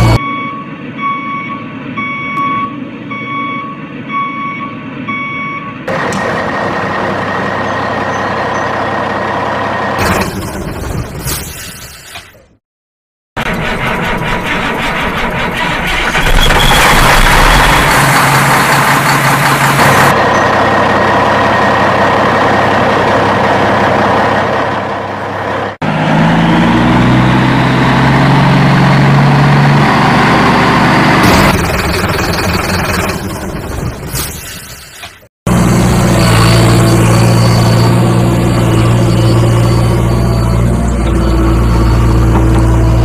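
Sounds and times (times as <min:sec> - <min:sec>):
truck engine idling: 0:13.4 - 0:25.8, 0:30.9 - 0:34.1.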